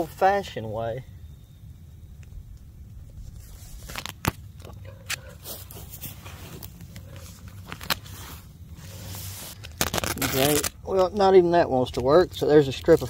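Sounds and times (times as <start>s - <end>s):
tent fabric rustling and scraping: 3.2s - 4.1s, 5.4s - 10.7s.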